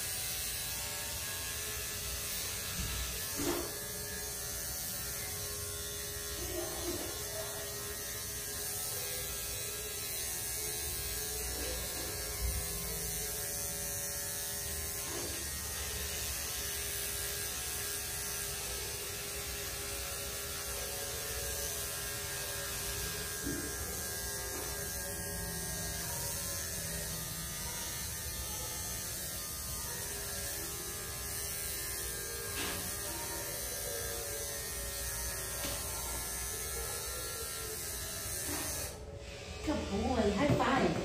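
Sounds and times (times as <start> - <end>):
electric clipper buzzing: 0.0 - 41.0.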